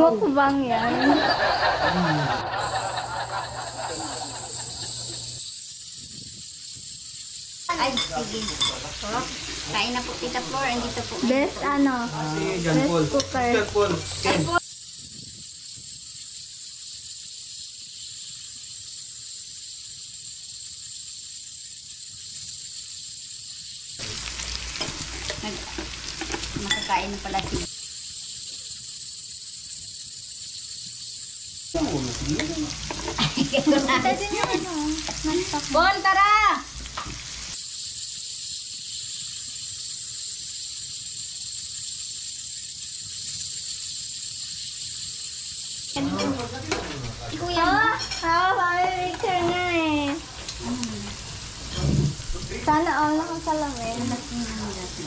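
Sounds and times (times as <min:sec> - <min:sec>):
meat sizzling on a grill pan: 0:00.0 - 0:55.0
tongs clinking and clattering: 0:07.8 - 0:09.0, 0:24.3 - 0:27.7, 0:47.9 - 0:49.6.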